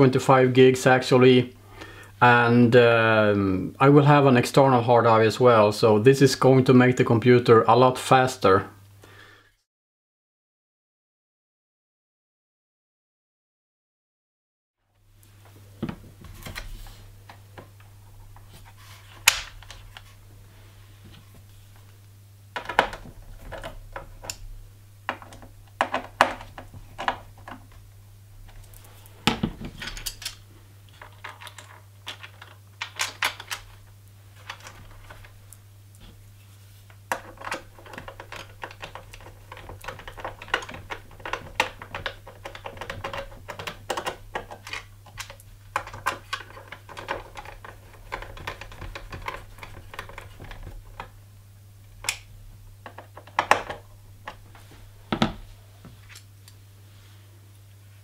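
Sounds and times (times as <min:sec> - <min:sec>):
low steady hum: 0:14.9 - 0:58.0
screwdriver and parts clicking: 0:28.7 - 0:33.8, 0:37.1 - 0:51.1.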